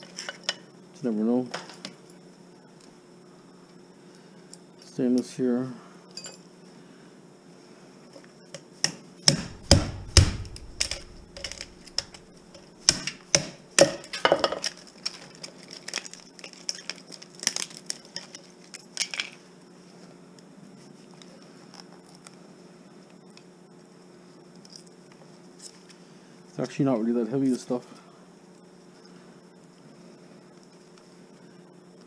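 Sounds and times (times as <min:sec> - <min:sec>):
metal parts and tools clanking: 0:09.5 - 0:12.2.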